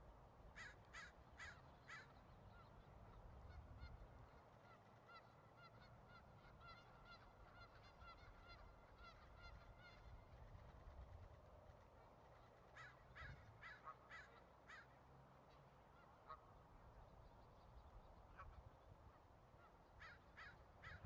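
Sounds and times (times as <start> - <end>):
harsh bird caws: 0.6 - 2.2, 12.8 - 15.0, 20.0 - 21.0.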